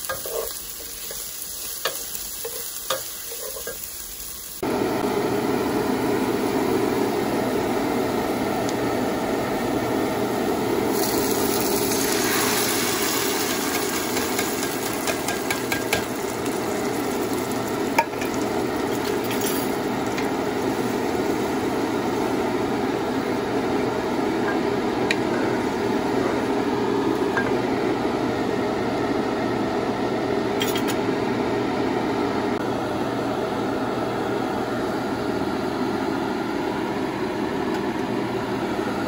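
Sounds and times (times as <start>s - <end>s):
pot sizzling and stirring: 0.0s - 5.0s, 10.1s - 28.0s
fan hum: 0.0s - 39.0s.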